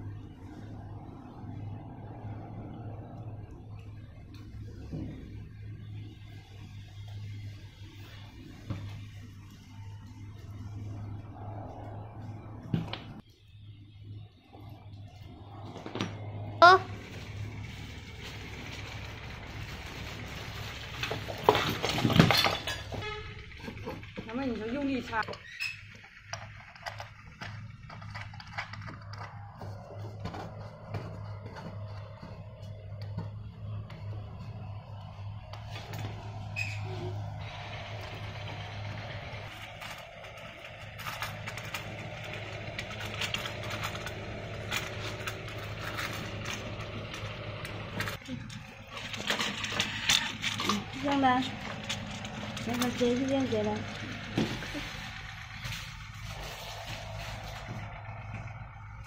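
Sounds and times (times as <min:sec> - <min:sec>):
low hum: 0:00.0 - 0:59.0
sharp clicks and clattering: 0:20.6 - 0:36.2, 0:37.1 - 0:58.6.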